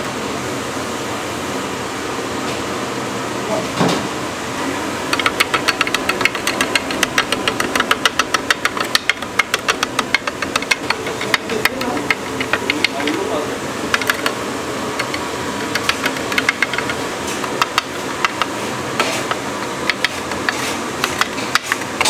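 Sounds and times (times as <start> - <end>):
fan-like hum: 0.0 - 22.0
rapid sharp knocks: 5.1 - 13.2, 15.0 - 18.5.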